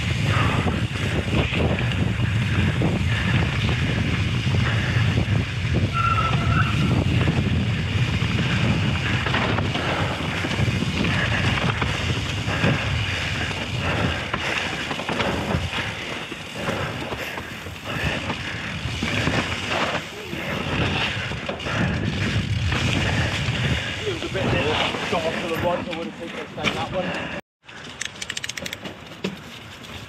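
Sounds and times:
low rumble of tyres: 0.0 - 26.0
wind buffeting microphone: 0.0 - 26.2
high squeak: 6.0 - 6.9
bike clattering over rocks: 8.8 - 23.6.

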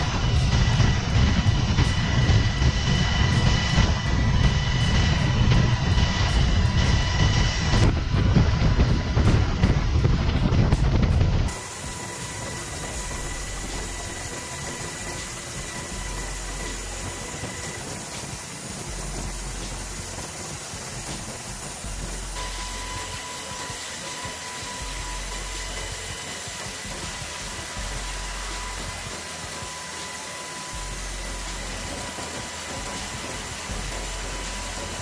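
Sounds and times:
low rumble: 0.0 - 11.6, 12.3 - 23.3, 24.7 - 29.2, 32.7 - 35.0
rushing hiss: 11.5 - 35.0.

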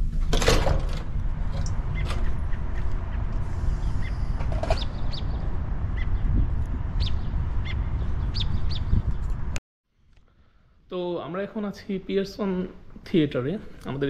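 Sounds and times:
steady low rumble: 0.0 - 9.6
small birds chirping: 1.9 - 9.6.

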